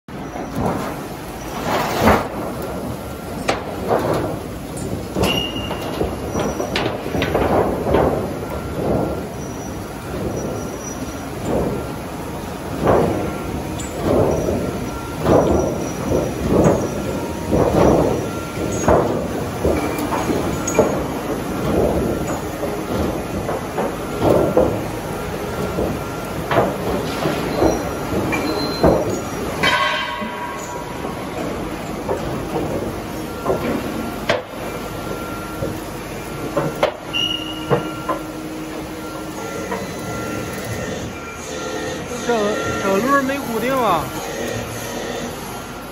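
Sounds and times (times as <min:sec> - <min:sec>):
machine mechanical rumble: 0:00.1 - 0:45.9
metallic clanks and knocks: 0:03.4 - 0:12.1, 0:12.7 - 0:24.9, 0:25.5 - 0:35.8
high machine squeal: 0:05.2 - 0:05.8, 0:27.2 - 0:29.4, 0:37.0 - 0:38.2, 0:38.9 - 0:45.8
metallic knocks and rattles: 0:25.8 - 0:34.5.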